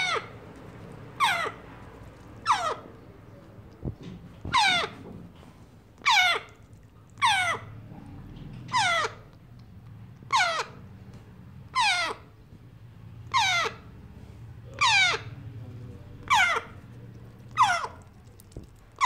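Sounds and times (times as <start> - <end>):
parrot chick begging calls: 0.0 - 0.4, 1.1 - 1.7, 2.3 - 2.9, 4.5 - 5.0, 6.0 - 6.6, 7.2 - 7.8, 8.7 - 9.4, 10.2 - 10.9, 11.7 - 12.4, 13.3 - 13.9, 14.7 - 15.4, 16.2 - 16.8, 17.5 - 18.1.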